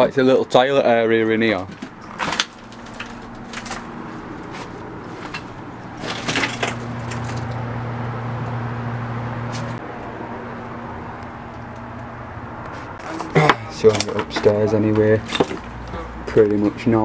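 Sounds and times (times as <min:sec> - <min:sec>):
motor vehicle engine hum: 0:00.0 - 0:17.0.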